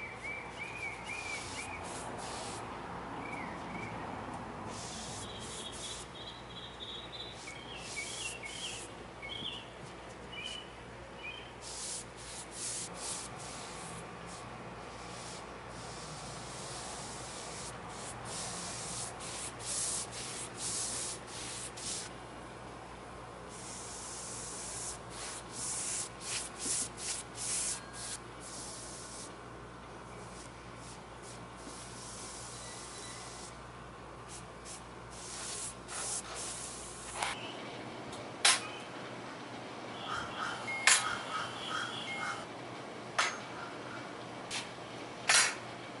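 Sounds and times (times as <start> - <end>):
foam brush swishing on wood: 25.2 - 29.1.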